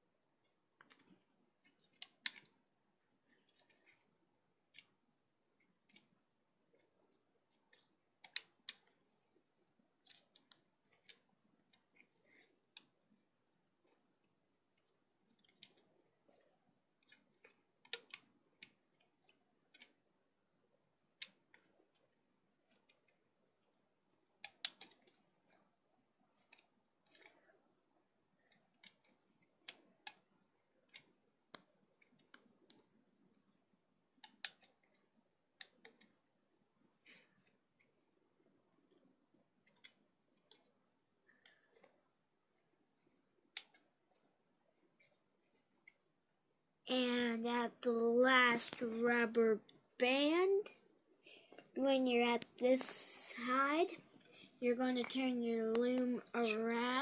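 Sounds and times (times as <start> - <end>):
rubber bands clicking and snapping: 0.4 - 2.6, 5.6 - 9.0, 10.0 - 13.1, 17.0 - 20.1, 24.4 - 27.6, 28.4 - 33.0, 34.1 - 36.2.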